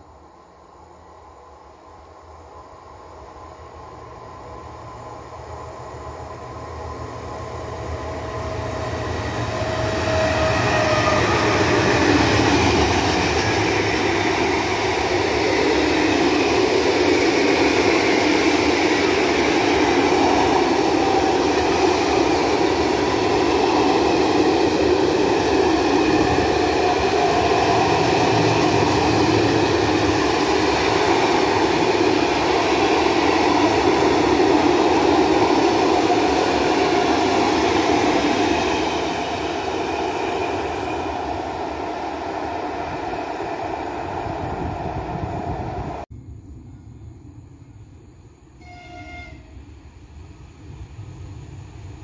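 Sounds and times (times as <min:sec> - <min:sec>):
freight train rumbling past: 0:00.0 - 0:52.0.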